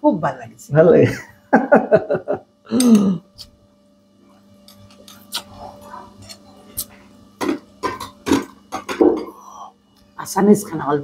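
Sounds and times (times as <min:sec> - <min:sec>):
eating sounds: 0:04.7 - 0:07.0.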